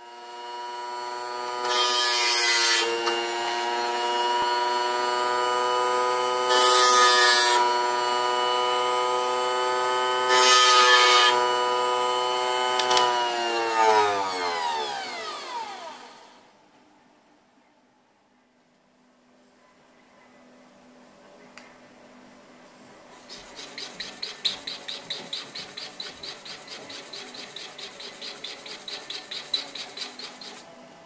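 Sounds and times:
bench grinder whining: 0:00.0 - 0:16.5, 0:23.3 - 0:30.7
motor winding down: 0:02.8 - 0:16.4, 0:23.5 - 0:30.6.

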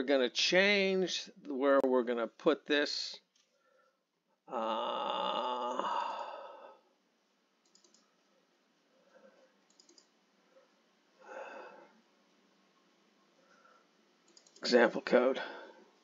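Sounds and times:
man humming hmm: 0:04.5 - 0:06.7
short breathy vocal sound: 0:04.5 - 0:06.8
computer mouse clicks: 0:07.6 - 0:08.1, 0:09.7 - 0:10.2, 0:14.3 - 0:14.7.

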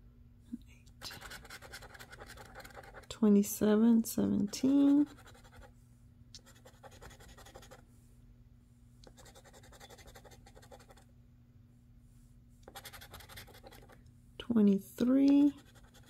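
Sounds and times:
scratching lottery ticket coating: 0:01.0 - 0:03.0.

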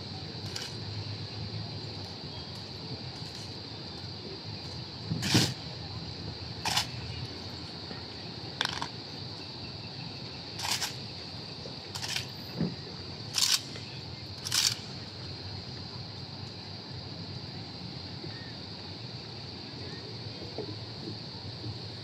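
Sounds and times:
rifles clacking and slapping: 0:08.6 - 0:08.9.

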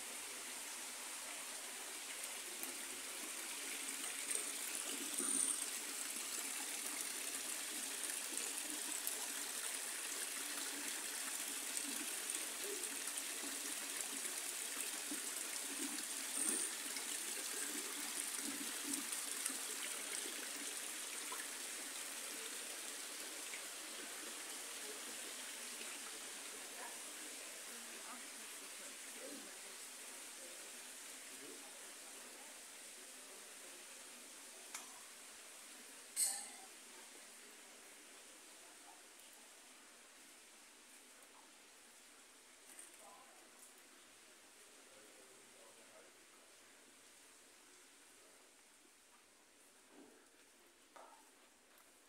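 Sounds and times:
water trickling into pond: 0:00.0 - 0:33.6.

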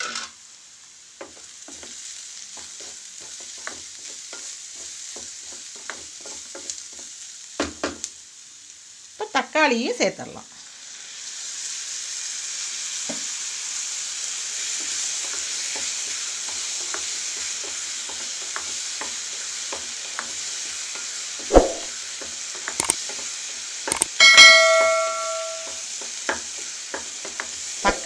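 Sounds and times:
vegetables sizzling in oil: 0:00.0 - 0:28.0
spatula scraping a pan: 0:01.2 - 0:07.2, 0:26.0 - 0:28.0
sharp knock: 0:21.5 - 0:21.9, 0:24.2 - 0:25.8
bell-like ding: 0:24.0 - 0:25.8.

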